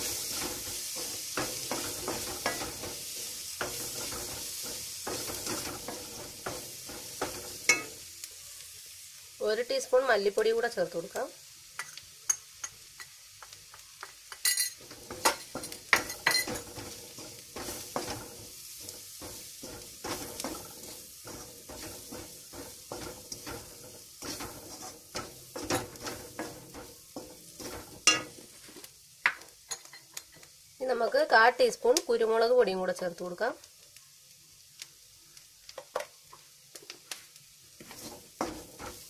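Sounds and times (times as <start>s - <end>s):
spatula scraping metal pan: 0.0s - 7.9s, 14.8s - 28.4s, 37.8s - 39.0s
oil sizzling: 0.0s - 39.0s.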